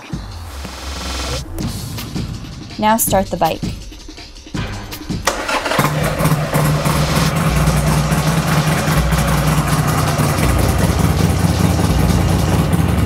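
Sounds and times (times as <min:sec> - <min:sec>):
motorcycle engine idling: 0:04.6 - 0:13.0
motorcycle electric starter cranking: 0:05.2 - 0:12.9.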